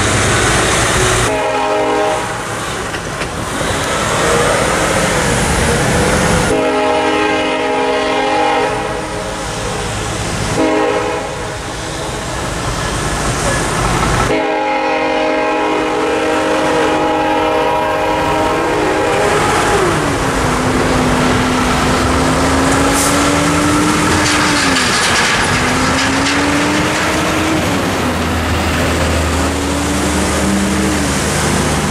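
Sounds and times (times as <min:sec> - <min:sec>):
traffic on wet pavement: 0:00.0 - 0:31.9
locomotive air horn blasts: 0:01.0 - 0:02.8, 0:06.5 - 0:09.4, 0:10.5 - 0:12.2, 0:14.3 - 0:20.2, 0:21.2 - 0:24.6.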